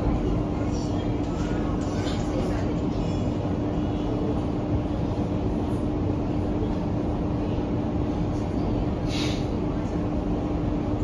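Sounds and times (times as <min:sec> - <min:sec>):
metro car running rumble: 0:00.0 - 0:11.0.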